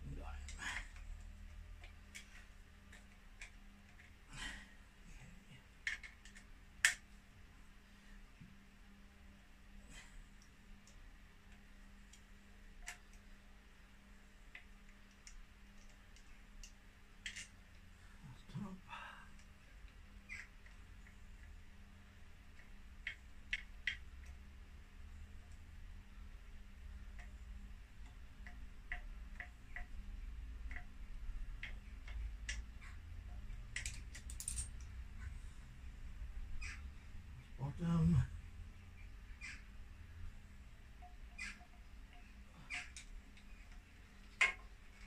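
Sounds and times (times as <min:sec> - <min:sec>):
low steady hum: 0:00.0 - 0:45.0
clicks of hand tools and metal parts: 0:33.7 - 0:34.9.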